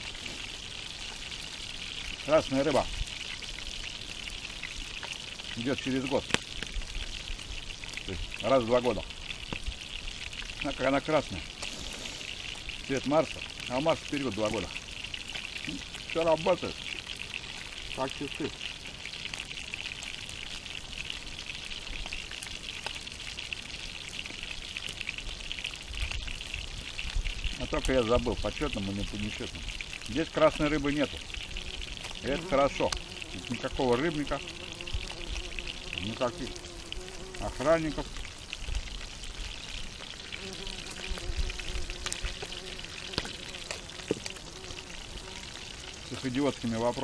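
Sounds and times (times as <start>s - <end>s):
fish sizzling in a pan: 0.0s - 47.0s.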